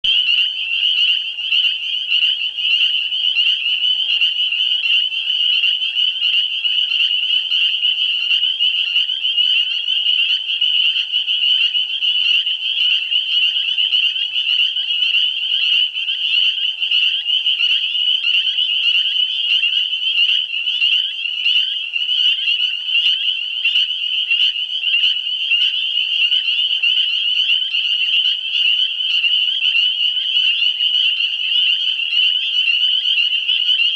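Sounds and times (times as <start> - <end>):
frogs chorus: 0.0 - 33.9.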